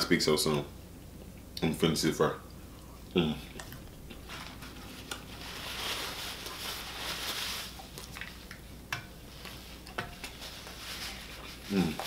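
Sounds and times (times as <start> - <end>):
paper napkin rustling: 4.1 - 8.4, 9.3 - 12.0.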